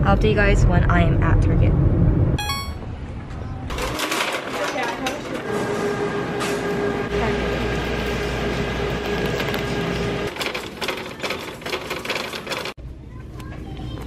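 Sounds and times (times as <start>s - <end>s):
shopping cart rattling: 3.7s - 5.5s, 8.9s - 12.8s.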